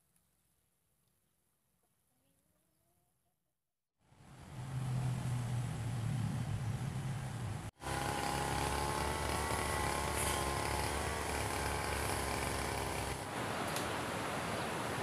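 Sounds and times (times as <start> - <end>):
brush cutter engine whining: 7.8 - 13.3.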